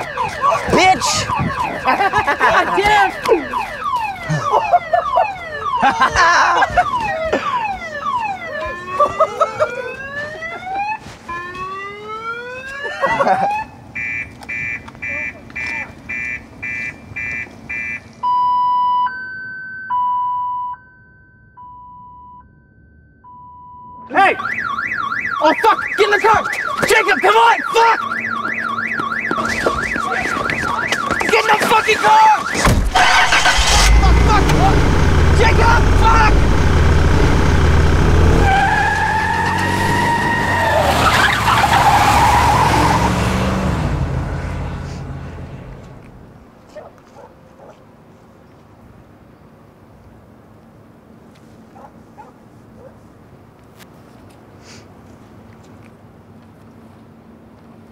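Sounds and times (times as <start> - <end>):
car alarm electronic beep: 0.0 - 11.0, 13.5 - 39.7
car alarm two-tone siren: 0.0 - 43.1
tires squealing: 32.0 - 46.0
car engine revving: 32.7 - 46.2.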